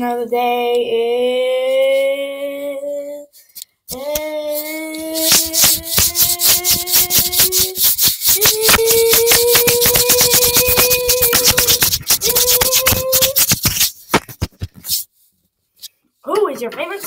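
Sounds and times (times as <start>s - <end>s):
person singing long held notes: 0.9s - 13.4s.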